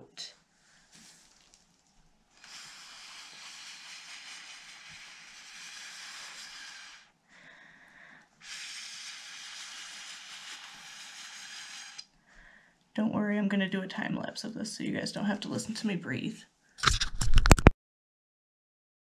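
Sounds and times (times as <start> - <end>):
breath blown through a straw: 2.4 - 12.6.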